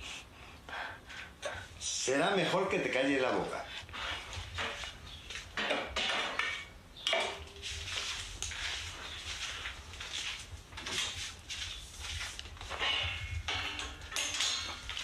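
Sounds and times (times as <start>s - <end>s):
metal tools clinking: 12.7s - 15.0s.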